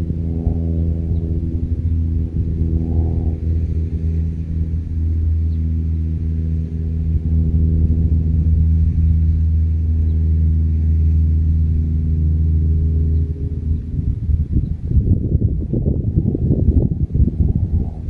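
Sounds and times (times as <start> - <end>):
motor humming: 0.0 - 18.0.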